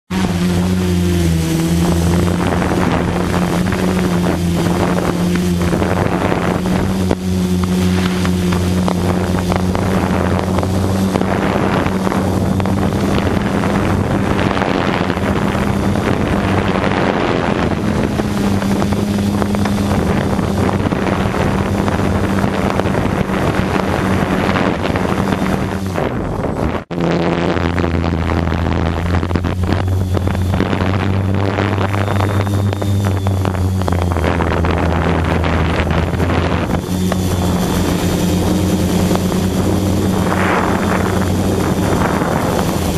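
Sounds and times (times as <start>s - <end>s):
drone propellers humming: 0.0s - 42.9s
wind buffeting microphone: 0.1s - 42.9s.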